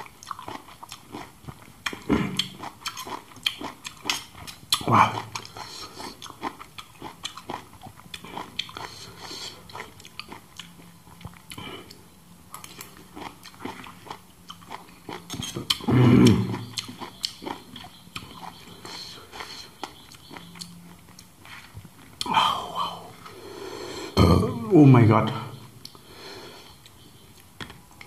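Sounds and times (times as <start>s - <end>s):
chewing and mouth smacking: 0.0s - 22.4s, 25.8s - 26.0s
short vocal sound: 24.1s - 25.6s.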